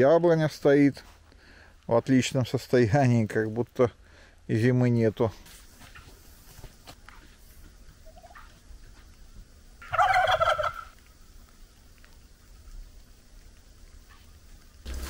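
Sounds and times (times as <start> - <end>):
turkey gobbling: 8.0 - 8.6, 9.8 - 11.0.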